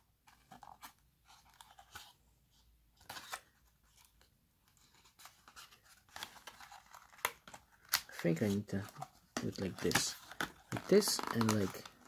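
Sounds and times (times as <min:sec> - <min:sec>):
cardboard crinkling and scraping: 0:04.7 - 0:12.0.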